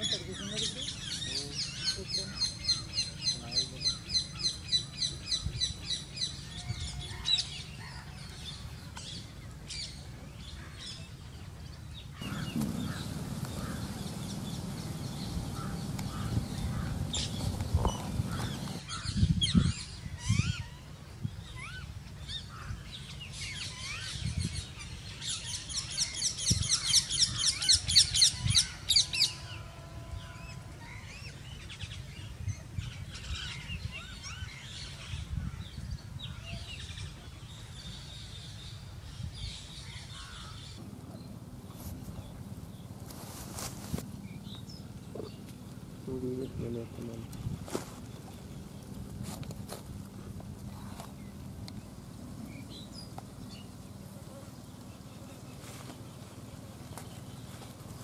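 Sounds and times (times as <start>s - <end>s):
soft low thumps: 12.2s - 18.8s
steady hiss: 12.2s - 18.8s
birds calling repeated high notes: 12.2s - 18.9s.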